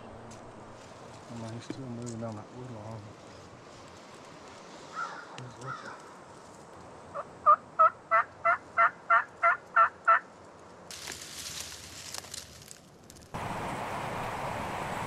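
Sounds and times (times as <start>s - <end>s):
brush rustling: 0.0s - 7.1s, 10.2s - 14.6s
turkey yelping: 7.2s - 10.2s.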